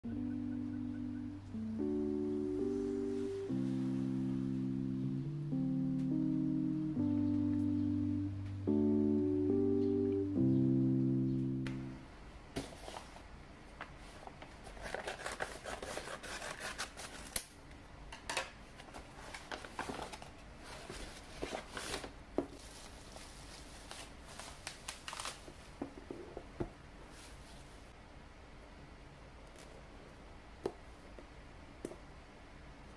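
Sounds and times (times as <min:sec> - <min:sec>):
paper rustling and crinkling: 0:12.6 - 0:17.5, 0:18.8 - 0:26.2.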